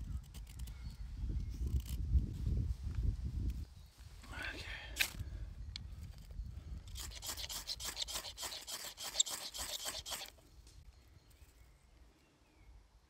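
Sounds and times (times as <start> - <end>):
knife scraping ferrocerium rod: 6.9 - 10.4.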